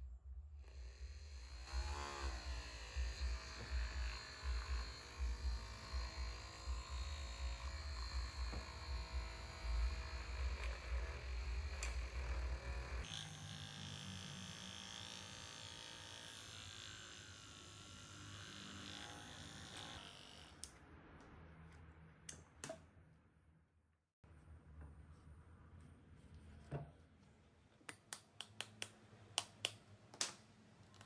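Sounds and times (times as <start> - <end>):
electric mixer motor whirring: 0.7 - 20.6.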